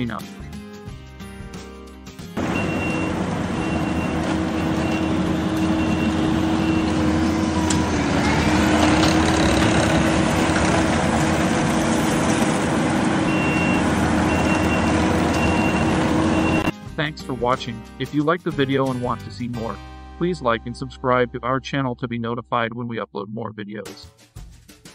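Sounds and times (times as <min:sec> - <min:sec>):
diesel engine running: 0:02.2 - 0:16.8
backup alarm beeping: 0:02.4 - 0:07.3, 0:13.2 - 0:16.7.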